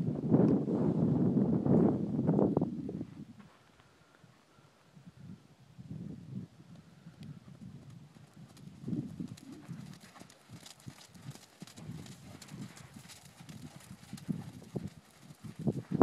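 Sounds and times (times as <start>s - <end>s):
horse hoofbeats on sand: 8.1s - 16.0s.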